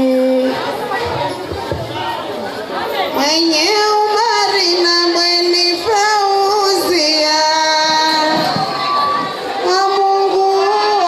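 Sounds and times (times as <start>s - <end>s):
woman singing: 0.0s - 0.6s, 3.2s - 8.8s, 9.6s - 11.0s.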